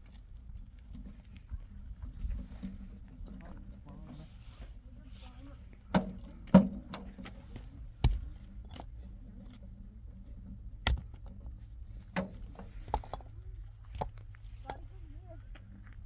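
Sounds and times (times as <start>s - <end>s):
sharp knocks and clunks: 5.9s - 7.4s, 8.0s - 8.9s, 10.8s - 11.3s.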